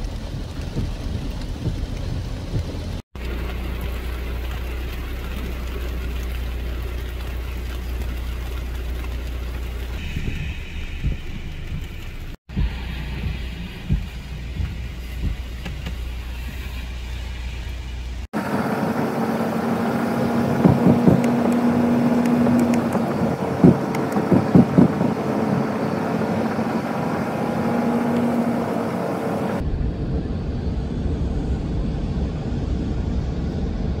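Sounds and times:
heavy rain falling: 0:00.0 - 0:17.1, 0:18.4 - 0:29.6
wind rumbling on microphone: 0:00.0 - 0:18.2, 0:19.0 - 0:34.0
car engine and tyre hum: 0:00.0 - 0:34.0.

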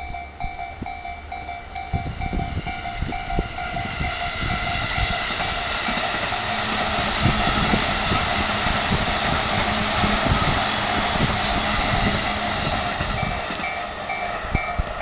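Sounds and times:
level crossing bell ringing: 0:00.0 - 0:03.9, 0:13.2 - 0:15.0
electric train passing: 0:00.0 - 0:15.0.

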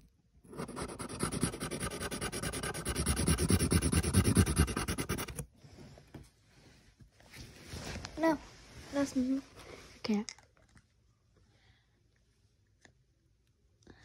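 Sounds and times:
marker scribbling on paper: 0:00.5 - 0:05.4.

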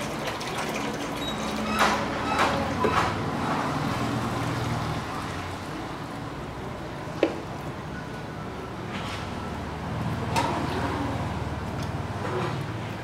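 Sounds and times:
water glugging into metal pot: 0:00.0 - 0:03.0.

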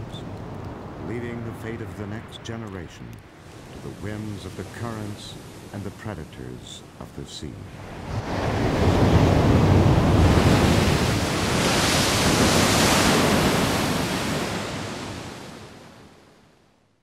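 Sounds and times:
waves crashing on rocks: 0:03.4 - 0:07.1, 0:07.7 - 0:16.0.

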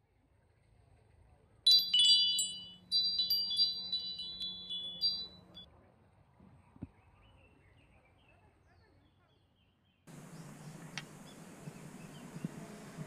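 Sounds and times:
tinkling chimes: 0:01.7 - 0:05.6.

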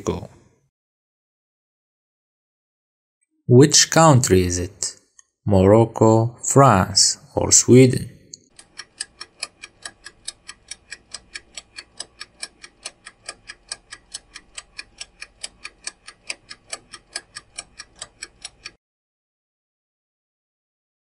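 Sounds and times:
rapid clock ticks: 0:08.3 - 0:18.8.

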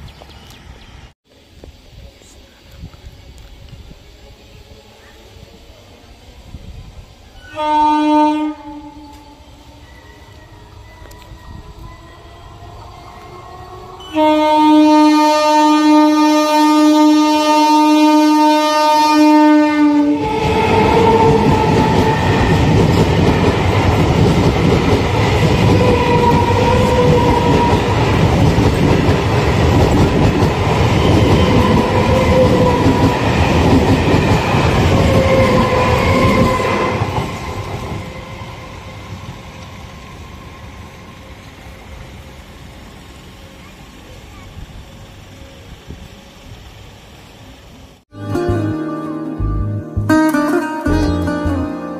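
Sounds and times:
train horn: 0:07.4 - 0:22.9, 0:25.7 - 0:28.0
train wheels on rails: 0:19.8 - 0:48.0.

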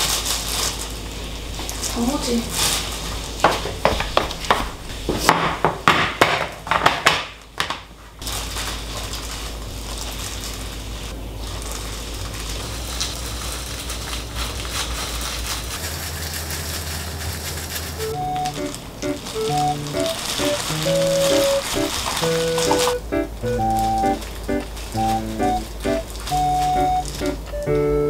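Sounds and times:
plastic gloves crinkling: 0:00.0 - 0:05.1, 0:08.2 - 0:27.5.

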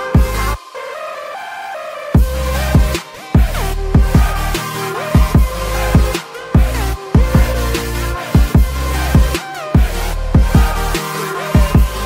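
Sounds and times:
gliding synth lines: 0:00.0 - 0:12.0
deep electronic kick drums: 0:00.2 - 0:00.5, 0:02.2 - 0:07.8, 0:08.4 - 0:11.0, 0:11.6 - 0:12.0
sustained bass: 0:00.2 - 0:00.6, 0:02.2 - 0:12.0.

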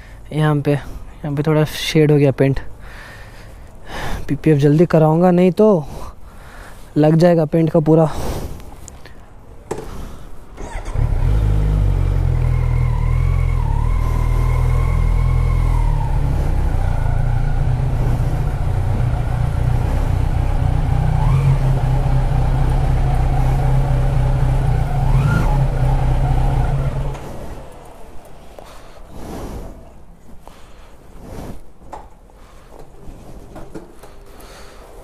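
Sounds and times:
motorcycle throttle blips: 0:10.6 - 0:29.2
motorcycle engine running: 0:10.7 - 0:28.3.

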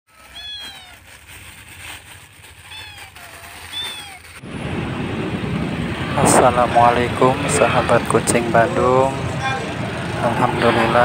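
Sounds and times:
cat meowing: 0:00.1 - 0:01.2, 0:02.6 - 0:04.4, 0:09.3 - 0:09.8
street traffic noise: 0:00.1 - 0:11.0.

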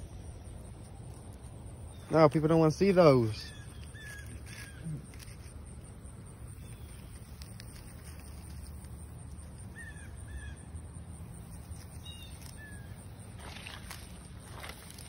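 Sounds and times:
birds chirping: 0:00.0 - 0:15.0
rustle: 0:00.0 - 0:15.0.

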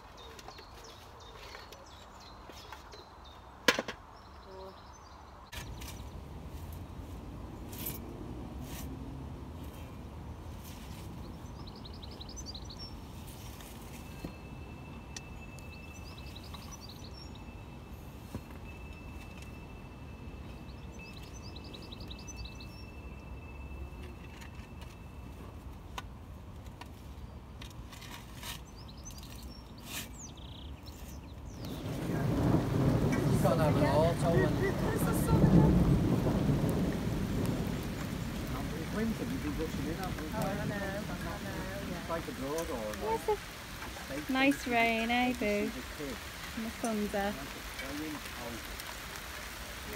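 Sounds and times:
birds chirping: 0:00.0 - 0:08.2, 0:09.7 - 0:25.6, 0:27.1 - 0:49.9
leaves rustling: 0:04.5 - 0:49.9
small bird chirping: 0:15.1 - 0:17.7
low outdoor rumble: 0:31.5 - 0:49.9
heavy rain hissing: 0:31.6 - 0:49.9.

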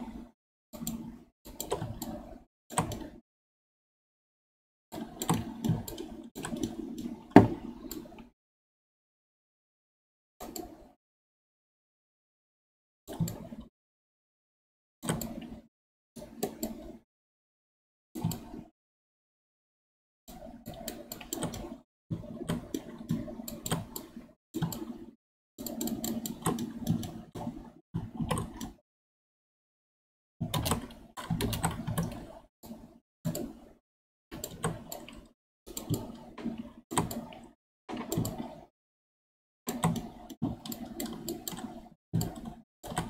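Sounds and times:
keyboard and mouse clicking: 0:00.8 - 0:03.2, 0:05.0 - 0:08.3, 0:10.4 - 0:10.9, 0:15.0 - 0:15.6, 0:16.2 - 0:16.9, 0:20.4 - 0:27.6, 0:28.2 - 0:28.8, 0:30.5 - 0:32.4, 0:33.3 - 0:33.7, 0:34.3 - 0:38.6, 0:39.7 - 0:43.0.

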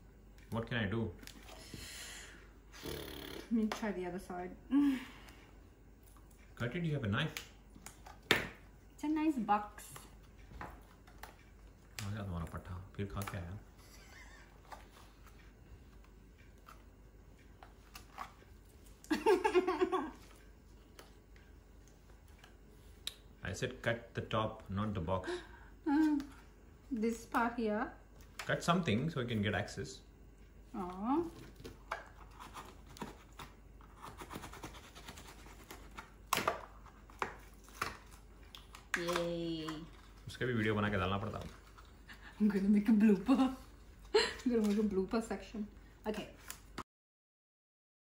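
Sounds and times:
woman laughing loudly: 0:19.1 - 0:20.2
scissors scraping cardboard: 0:32.2 - 0:36.0.

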